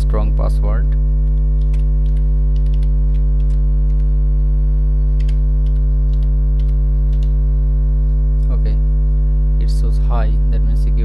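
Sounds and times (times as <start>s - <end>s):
loud electrical mains hum: 0.0s - 11.0s
keyboard keys tapping: 0.9s - 4.1s, 5.2s - 7.3s.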